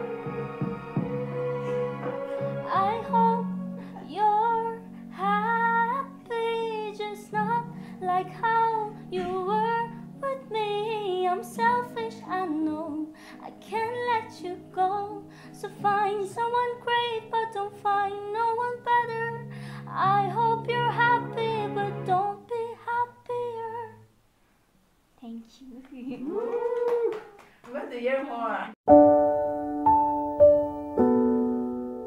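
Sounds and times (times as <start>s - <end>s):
held backing chords: 0.0s - 22.5s, 28.9s - 32.0s
girl singing: 2.6s - 24.1s.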